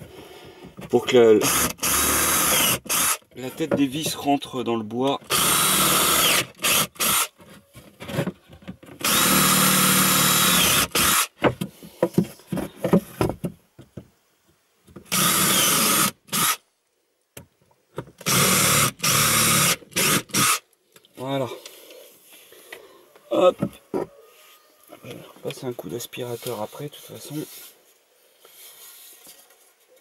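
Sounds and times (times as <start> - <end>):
cordless drill running: 1.4 - 3.2, 5.3 - 7.3, 9.0 - 11.3, 15.1 - 16.6, 18.2 - 20.6.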